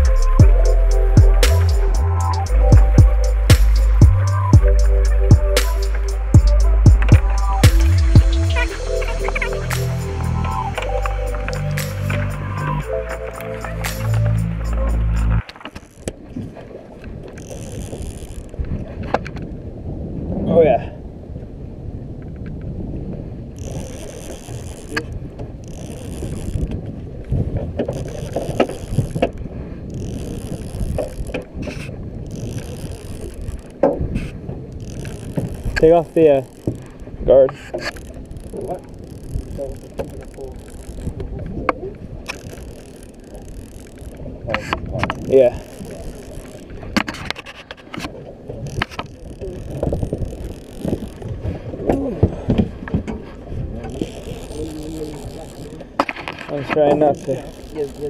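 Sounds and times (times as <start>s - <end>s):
fishing reel whirring and clicking: 0.0s - 16.1s, 17.2s - 18.6s, 23.6s - 37.0s, 37.7s - 41.3s, 42.2s - 47.4s, 48.5s - 51.5s, 53.9s - 55.8s, 57.0s - 58.0s
sharp clicks: 0.0s - 16.2s
wind buffeting microphone: 0.0s - 57.9s.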